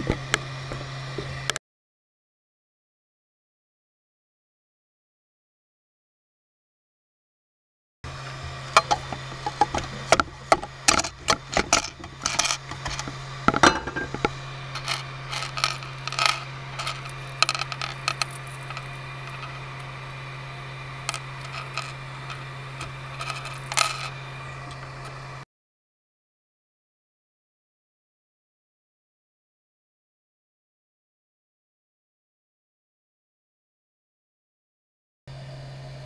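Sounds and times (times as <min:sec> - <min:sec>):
steady low hum: 0:08.1 - 0:25.4
plastic links clattering on glass plate: 0:08.8 - 0:19.6, 0:21.1 - 0:24.2.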